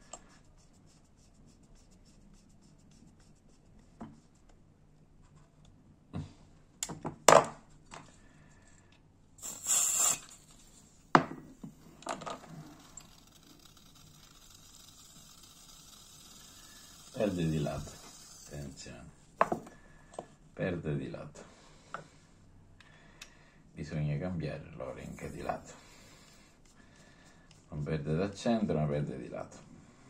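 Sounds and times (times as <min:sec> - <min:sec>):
butane gas hiss: 0:09.4 - 0:10.8, 0:12.4 - 0:18.9, 0:25.0 - 0:27.5
faint gas leak hiss: 0:09.4 - 0:10.9, 0:24.9 - 0:27.7.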